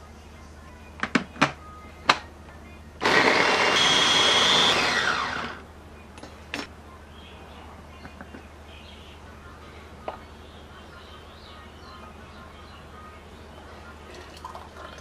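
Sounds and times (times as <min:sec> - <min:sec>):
mini chopper motor running: 0:03.0 - 0:05.6.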